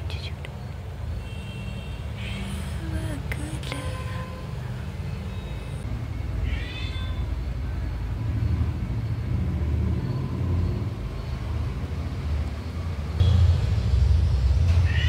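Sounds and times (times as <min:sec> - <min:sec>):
cat chirp: 0:06.4 - 0:07.3.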